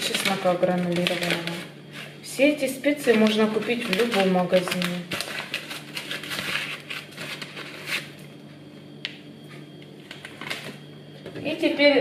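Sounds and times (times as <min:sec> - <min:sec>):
paper sachet rustling: 0:00.0 - 0:02.1, 0:03.0 - 0:08.2, 0:10.1 - 0:10.8.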